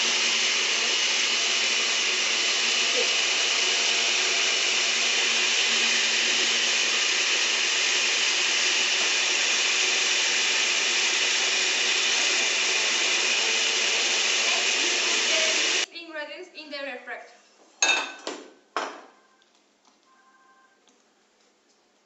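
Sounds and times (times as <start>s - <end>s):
blender running: 0.0s - 15.9s.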